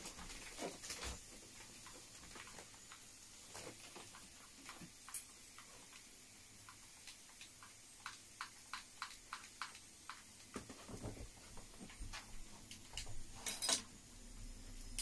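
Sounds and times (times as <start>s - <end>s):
plastic wrapping rustling: 0.0s - 2.8s
sharp plastic crinkle: 0.0s - 4.9s.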